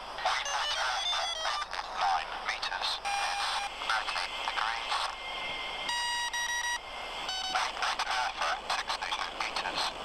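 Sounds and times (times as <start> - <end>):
electronic beep tones: 5.9 - 7.6.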